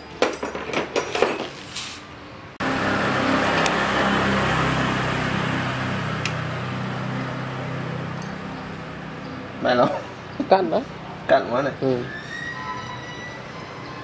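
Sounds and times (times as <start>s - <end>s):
machine humming: 2.6s - 9.6s.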